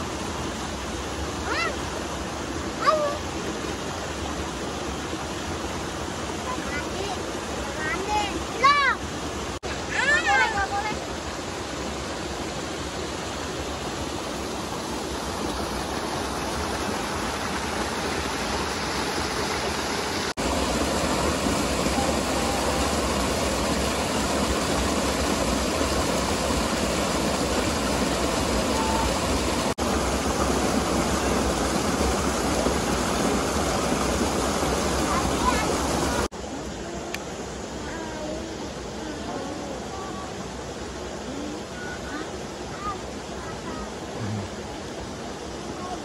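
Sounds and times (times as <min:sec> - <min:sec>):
water rushing over boulders: 0:00.0 - 0:46.0.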